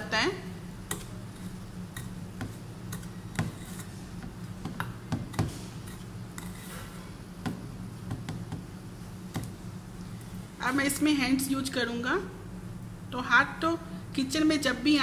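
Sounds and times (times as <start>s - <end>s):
steady low hum: 0.0s - 15.0s
spoon scraping steel bowl: 5.8s - 7.0s.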